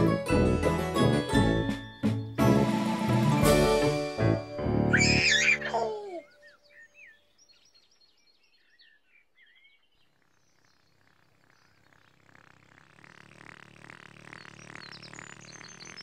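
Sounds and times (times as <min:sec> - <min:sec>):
faint birdsong: 0:05.0 - 0:16.0.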